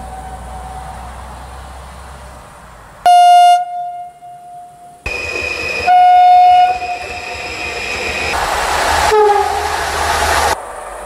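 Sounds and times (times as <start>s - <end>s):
higher train horn note: 5.8s - 7.2s, 8.4s - 10.6s
train horn low blast: 5.8s - 7.2s, 9.0s - 10.6s.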